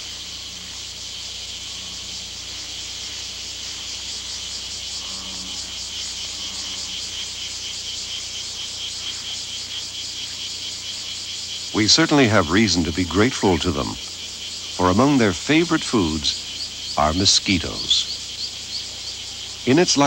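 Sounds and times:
insect chorus chirring: 0:00.0 - 0:20.0.

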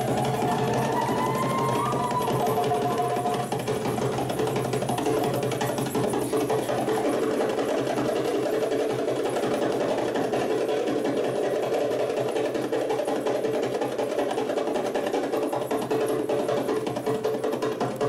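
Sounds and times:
steady held tone: 0:00.0 - 0:03.7
hand drums rolling: 0:00.0 - 0:18.0.

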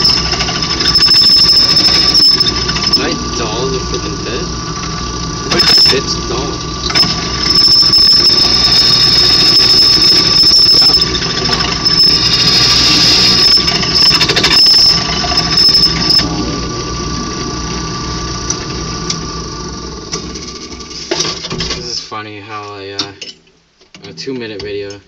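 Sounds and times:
drill squealing into steel: 0:00.0 - 0:19.3
drill press running: 0:00.0 - 0:21.9.

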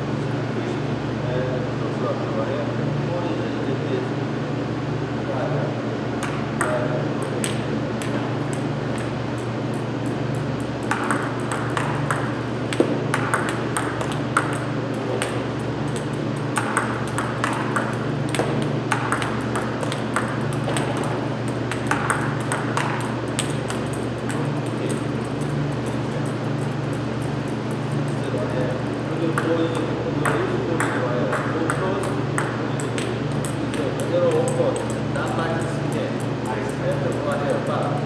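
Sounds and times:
steady low hum: 0:00.0 - 0:38.0
table tennis ball clicking: 0:06.2 - 0:27.3, 0:29.4 - 0:37.6.

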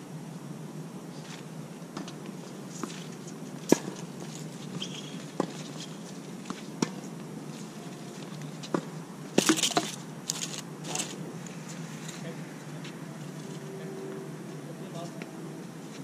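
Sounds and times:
shoes scuffing on court: 0:02.0 - 0:10.0.

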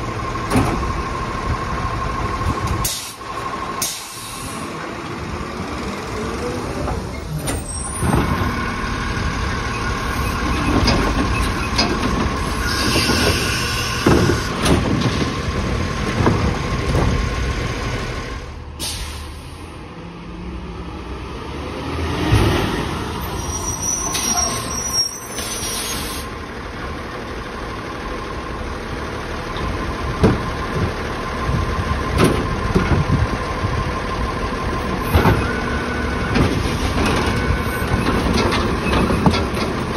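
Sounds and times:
garbage truck engine running: 0:00.0 - 0:21.0, 0:22.4 - 0:39.9
air brake hisses: 0:02.8 - 0:03.2, 0:18.8 - 0:19.7, 0:24.0 - 0:26.3.

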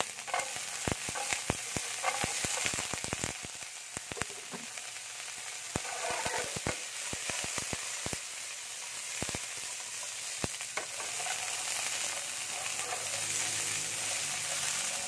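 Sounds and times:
carrots sizzling in oil: 0:00.0 - 0:15.0
metal tongs clicking on pan: 0:00.2 - 0:03.2.

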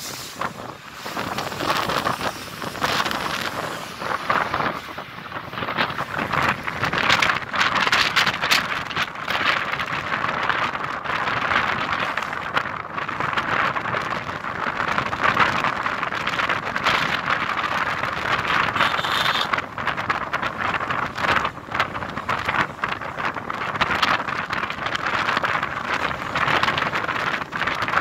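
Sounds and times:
road noise: 0:00.0 - 0:28.0
wind rushing over microphone: 0:00.0 - 0:28.0.

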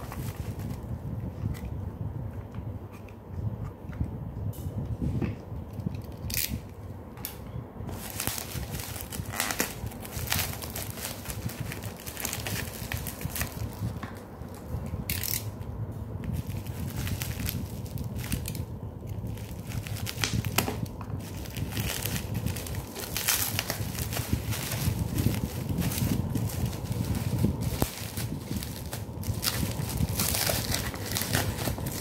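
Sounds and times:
cardboard packaging handled: 0:00.0 - 0:00.9, 0:07.9 - 0:15.4, 0:16.3 - 0:18.6, 0:19.2 - 0:32.0
paper rustling and crinkling: 0:00.0 - 0:01.7, 0:07.9 - 0:15.4, 0:16.3 - 0:32.0.

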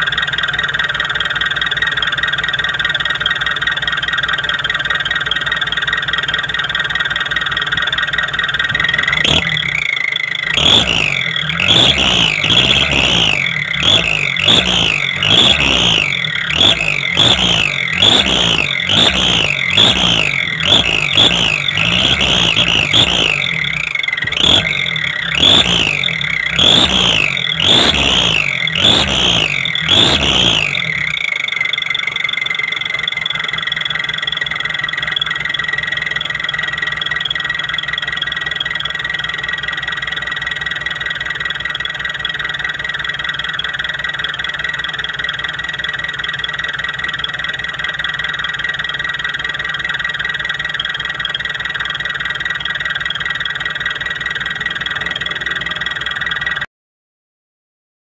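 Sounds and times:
engine throttle blips: 0:00.0 - 0:56.7
whistling exhaust pipe: 0:09.0 - 0:35.4.

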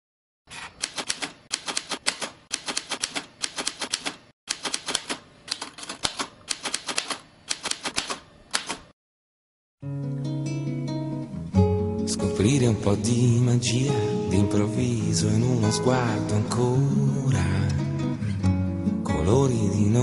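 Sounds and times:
typewriter keystrokes clacking: 0:00.7 - 0:08.9.

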